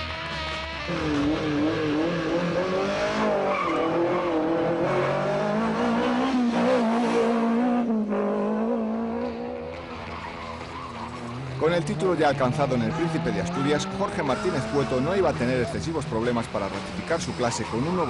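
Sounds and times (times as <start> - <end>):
rally car engine revving: 0.0 - 18.0.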